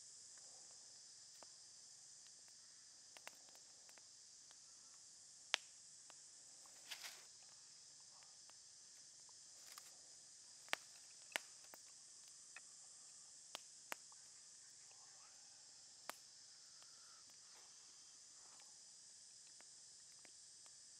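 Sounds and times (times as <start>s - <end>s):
insect chorus: 0.0s - 20.9s
sharp light clicks: 2.2s - 4.6s, 10.6s - 12.7s
brief rustle: 6.8s - 7.3s.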